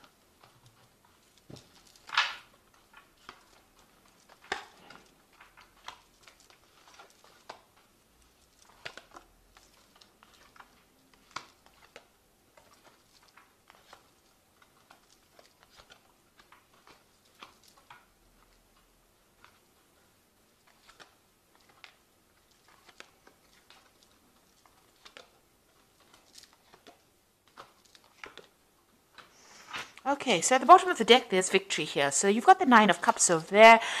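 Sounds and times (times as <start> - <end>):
cards slapping and brushing: 0.0 - 30.0
card swish: 29.5 - 30.0.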